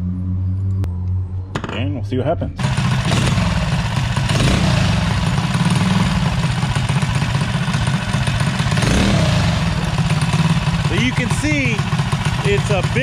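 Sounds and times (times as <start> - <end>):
go-kart engine running: 2.6 - 13.0.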